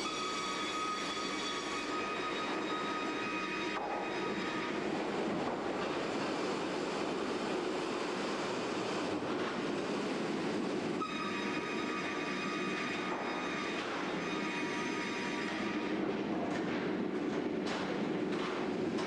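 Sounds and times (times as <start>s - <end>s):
high saw whine: 0.0s - 5.0s, 11.0s - 15.9s
sawmill machinery din: 0.0s - 7.0s, 11.0s - 16.2s.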